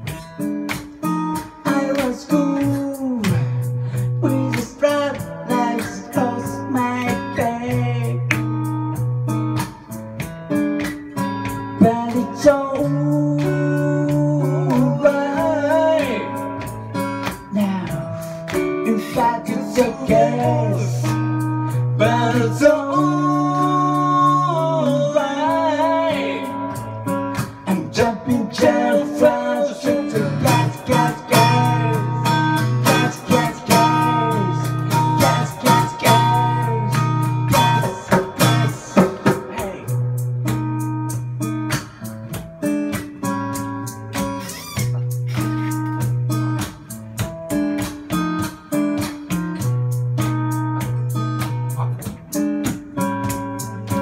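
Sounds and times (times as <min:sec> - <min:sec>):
acoustic guitar strummed and picked: 0:00.0 - 0:54.0
person singing: 0:01.4 - 0:08.3, 0:11.8 - 0:16.7, 0:17.4 - 0:40.1.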